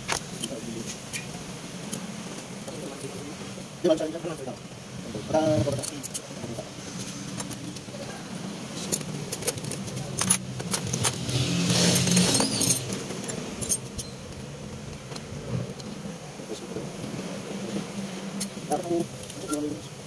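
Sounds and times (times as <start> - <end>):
metal parts clinking in basin: 8.8 - 14.2.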